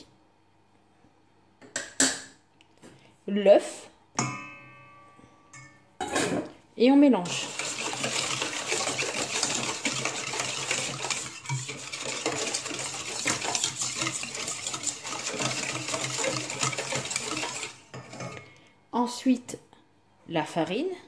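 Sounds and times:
whisk clinking against metal bowl: 7.2s - 18.4s.

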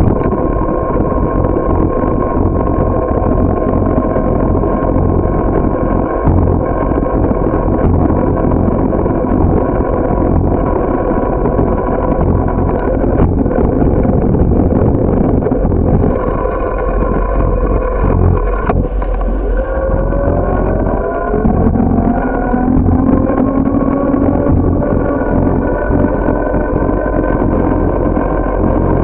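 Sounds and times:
road rumble: 0.0s - 29.0s
steady drone: 0.0s - 29.0s
wind on microphone: 0.0s - 29.0s
rising tone: 15.1s - 28.8s.

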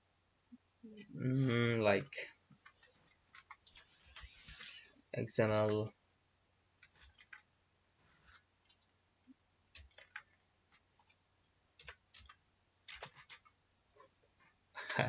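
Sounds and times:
keyboard typing clicks: 9.8s - 10.3s, 11.8s - 13.5s.

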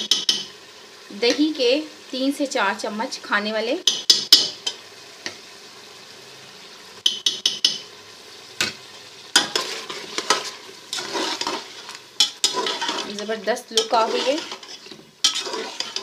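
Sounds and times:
spoon stirring and scraping pot: 0.0s - 0.5s, 3.9s - 4.8s, 7.0s - 7.8s, 9.4s - 16.0s
steady sizzle: 0.0s - 16.0s.

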